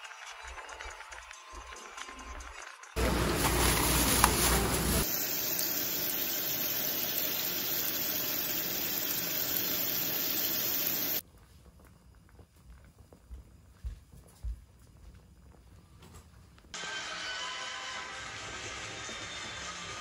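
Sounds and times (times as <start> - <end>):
rumbling market bustle: 3.0 - 5.0
tap water running into sink: 3.0 - 11.2.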